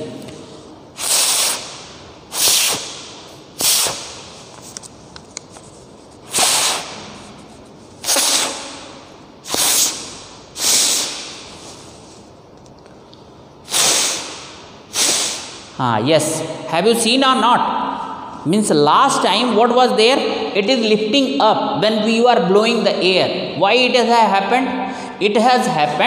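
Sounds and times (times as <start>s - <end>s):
puffs of breath over paper: 0.5s - 3.0s, 6.2s - 7.2s, 9.5s - 12.4s, 13.6s - 15.7s.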